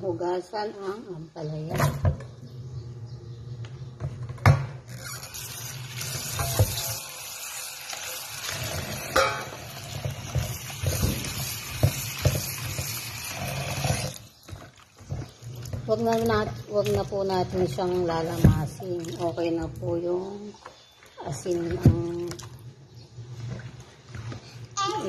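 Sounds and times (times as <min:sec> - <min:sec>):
water splashing into a sink: 0:05.2 - 0:20.0
steel bowl clunk: 0:09.1 - 0:12.5.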